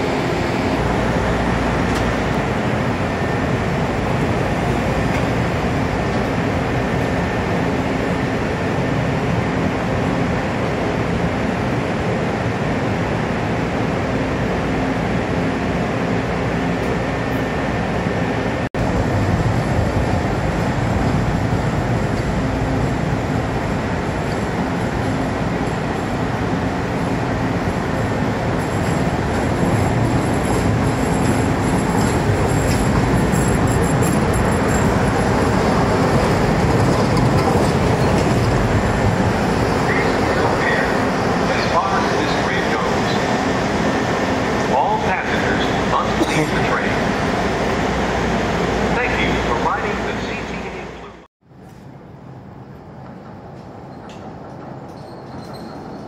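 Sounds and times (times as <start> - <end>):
train rumble and hum: 0.0 - 56.0
train wheel squeal: 29.7 - 35.2, 53.8 - 56.0.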